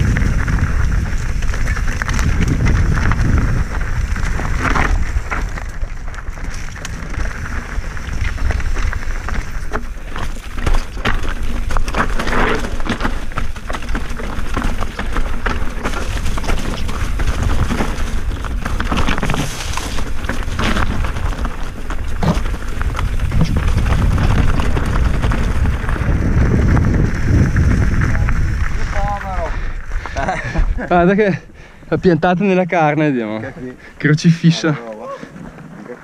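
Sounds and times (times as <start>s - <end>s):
wind on microphone: 0.0s - 9.7s, 22.0s - 30.9s
bike rattling: 0.0s - 36.0s
tyres crunching over stones: 0.0s - 36.0s.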